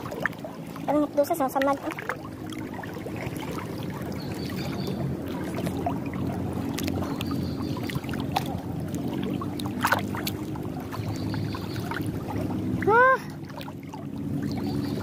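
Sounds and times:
motor engine humming: 0:00.0 - 0:15.0.

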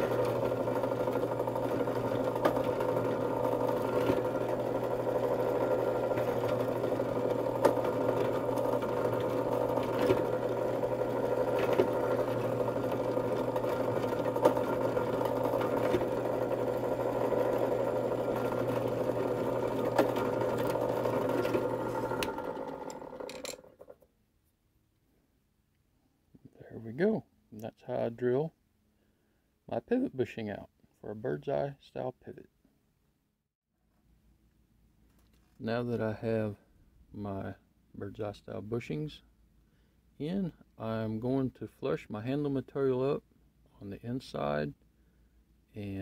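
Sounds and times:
drill press drilling metal: 0:00.0 - 0:23.9.

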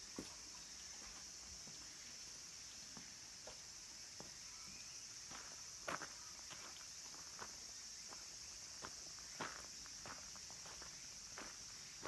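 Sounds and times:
cicadas singing: 0:00.0 - 0:12.0
footsteps on gravel: 0:05.3 - 0:12.0.

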